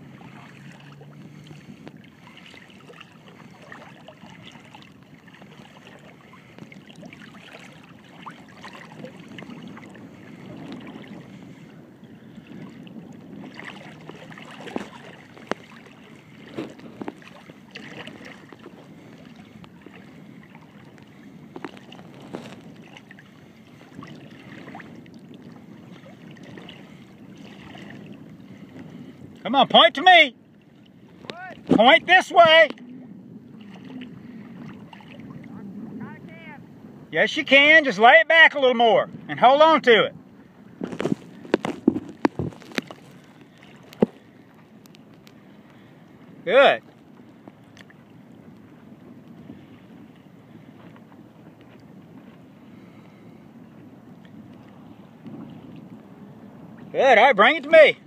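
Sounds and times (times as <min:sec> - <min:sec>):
waves lapping and splashing: 0:00.0 - 0:58.0.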